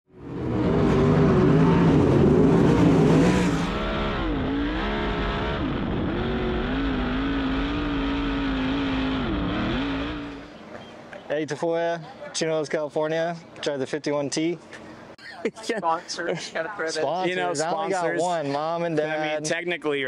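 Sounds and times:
race car engine running hard: 0.2s - 10.6s.

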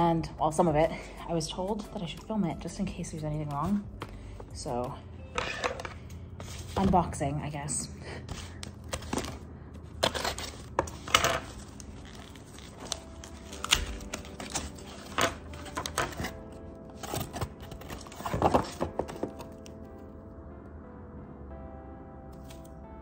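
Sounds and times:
cardboard flaps rustling: 8.3s - 9.4s, 17.0s - 19.6s
scissors cutting packing tape: 10.0s - 19.7s.

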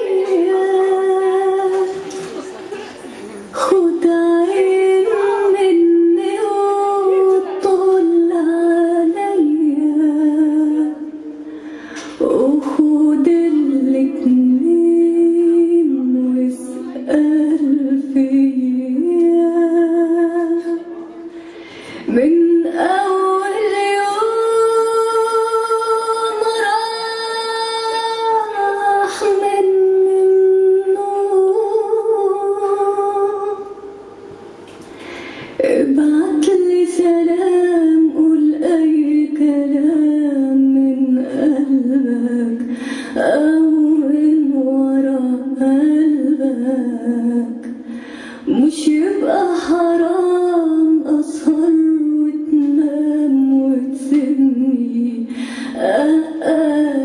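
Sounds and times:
woman singing melodic line: 0.0s - 2.1s, 3.6s - 11.4s, 12.2s - 21.0s, 22.1s - 33.8s, 35.6s - 47.8s.

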